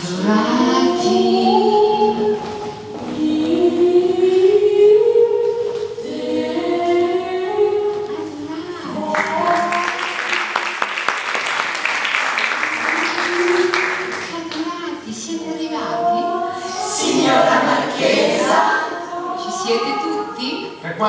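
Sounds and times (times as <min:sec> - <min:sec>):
choir singing: 0:00.0 - 0:08.1, 0:15.7 - 0:20.4
audience applause: 0:09.1 - 0:14.4.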